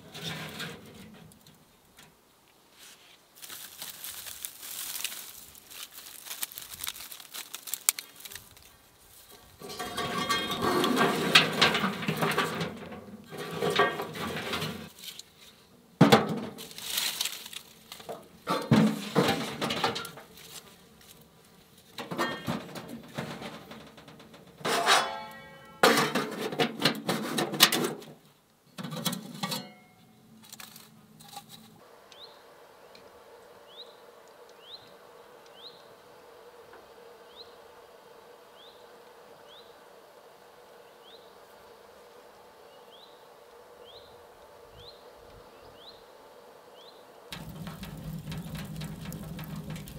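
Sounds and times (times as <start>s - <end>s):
twigs crackling and rustling: 2.8s - 9.8s, 16.6s - 18.5s, 20.1s - 22.0s, 30.4s - 31.8s, 47.4s - 49.9s.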